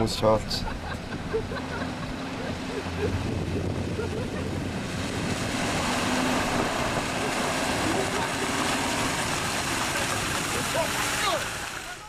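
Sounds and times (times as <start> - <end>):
off-road engine running: 0.0 - 12.0
water rushing: 0.0 - 12.0.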